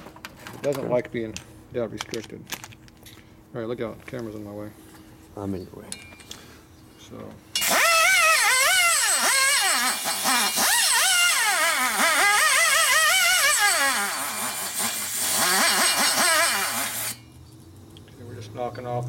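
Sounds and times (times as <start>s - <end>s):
die grinder whining on metal: 7.6s - 17.2s.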